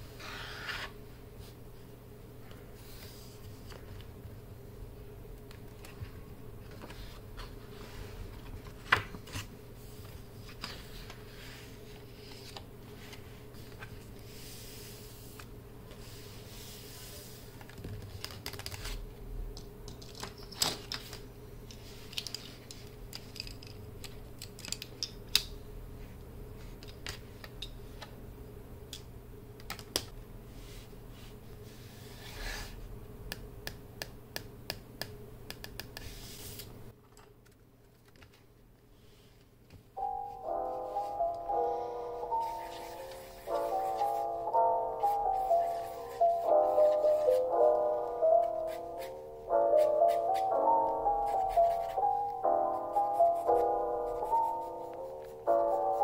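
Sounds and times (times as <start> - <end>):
paper pages rustling: 6.6 - 14.1.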